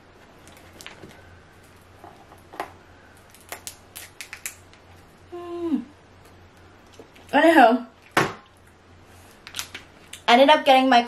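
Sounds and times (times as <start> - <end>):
crawfish shell cracking: 1.9 - 5.0.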